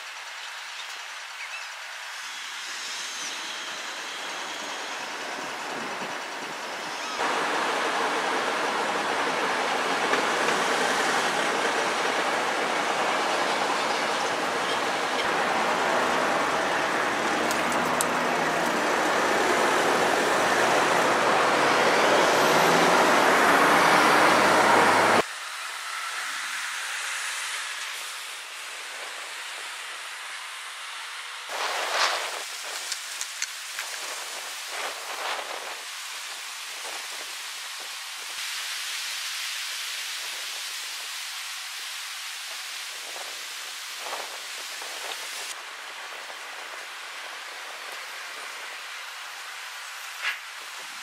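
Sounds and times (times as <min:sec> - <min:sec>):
excavator diesel engine under load: 0:07.2 - 0:25.2.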